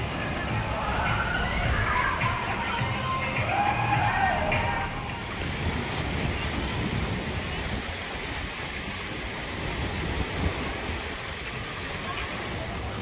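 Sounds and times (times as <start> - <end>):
waves washing in: 0.0 - 13.0.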